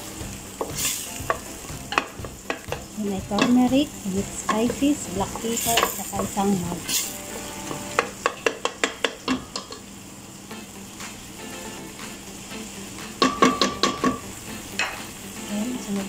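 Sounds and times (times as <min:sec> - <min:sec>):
sauce sizzling: 0:00.0 - 0:16.0
wooden spatula knocking on pot: 0:00.6 - 0:06.4, 0:08.0 - 0:09.8, 0:13.2 - 0:14.2.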